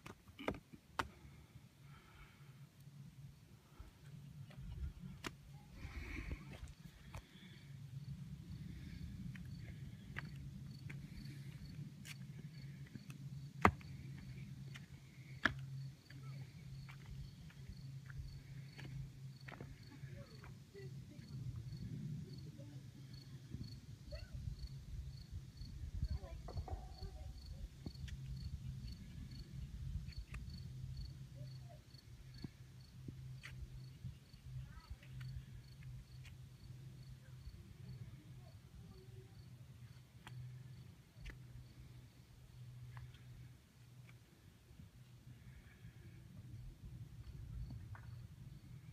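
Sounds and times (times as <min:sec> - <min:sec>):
low steady hum: 0:00.0 - 0:48.9
insects chirping: 0:06.0 - 0:22.4, 0:26.9 - 0:43.2.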